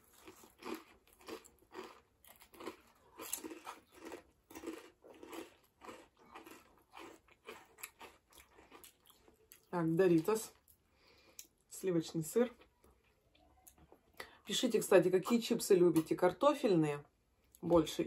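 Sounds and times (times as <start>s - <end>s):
crunchy chips being chewed: 0.0s - 9.7s.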